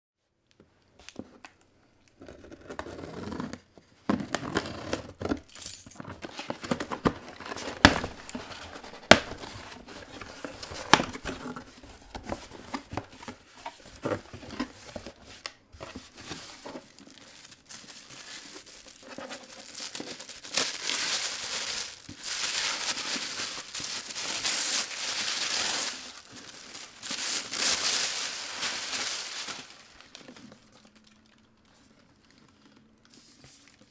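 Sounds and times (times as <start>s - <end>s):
plastic bag crinkling: 16.1s - 33.1s.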